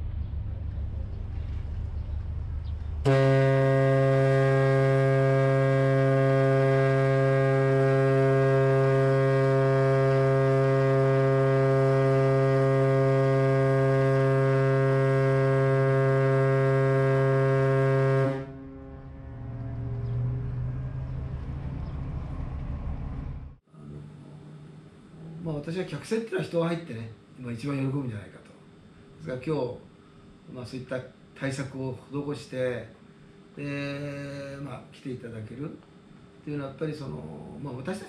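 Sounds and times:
ship's horn blast: 3.0s - 23.6s.

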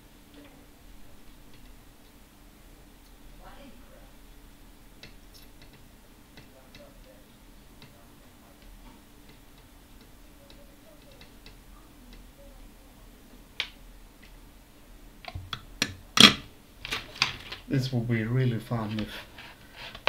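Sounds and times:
faint room hum: 0.0s - 20.0s
small ticks and clicks of tools: 5.0s - 7.2s, 8.6s - 12.4s
tools clicking and tapping: 5.0s - 8.0s, 8.6s - 12.3s, 15.2s - 17.6s.

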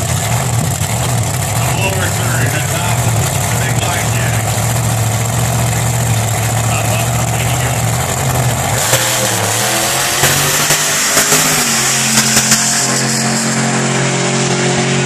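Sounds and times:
drag car engine revving: 0.0s - 15.0s
engine popping: 0.0s - 15.0s.

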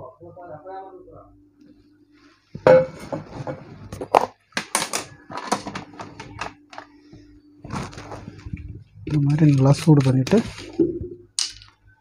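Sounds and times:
faint steady hum: 0.0s - 12.0s
lab items clattering on tabletop: 2.6s - 6.9s.

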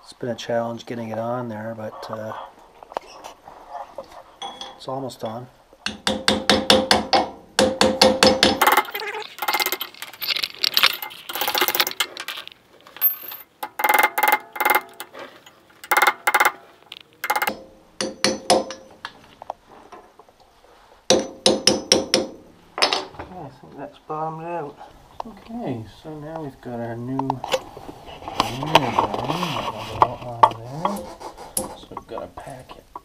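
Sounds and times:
hammer tapping on metal: 5.8s - 8.8s, 15.8s - 16.6s, 17.2s - 18.9s, 21.1s - 23.0s.

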